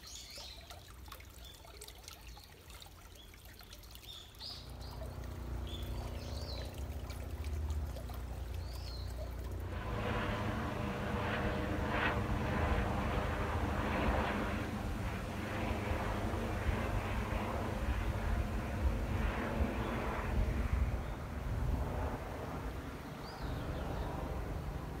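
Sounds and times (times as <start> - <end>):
small birds chirping: 0.0 - 9.6, 23.1 - 24.3
aircraft engine drone: 4.4 - 25.0.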